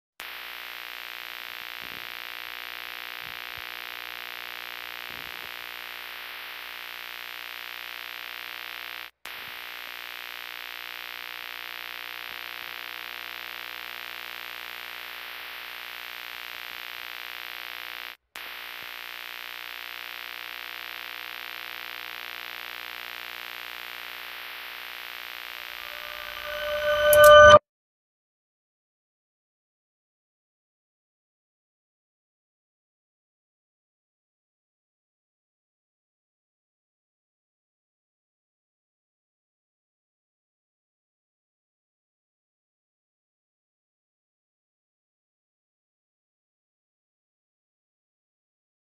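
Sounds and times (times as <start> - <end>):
static hiss: 0.2 - 27.6
held buzzing tones: 25.4 - 27.6.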